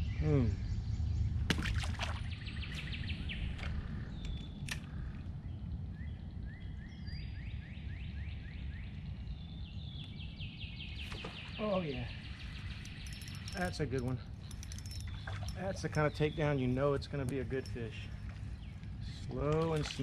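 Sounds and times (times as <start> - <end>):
songbirds singing: 0.0 - 20.0
steady low rumble: 2.2 - 20.0
sharp clicks: 3.6 - 5.0.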